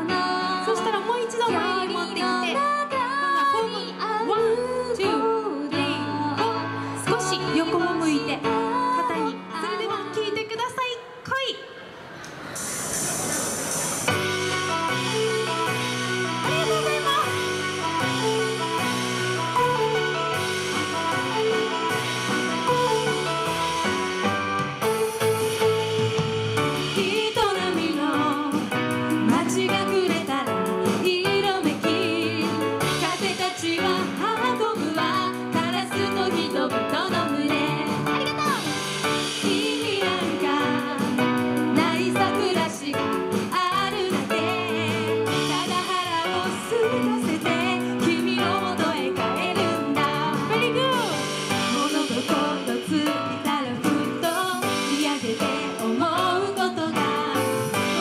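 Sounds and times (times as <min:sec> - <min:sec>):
women singing: 0:00.0 - 0:10.6, 0:26.9 - 0:38.5, 0:39.2 - 0:58.0
musical accompaniment: 0:12.2 - 0:58.0.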